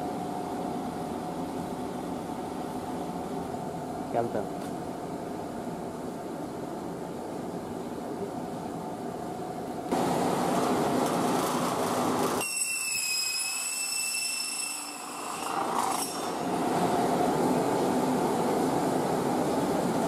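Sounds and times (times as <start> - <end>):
circular saw whining: 11.3 - 17.1.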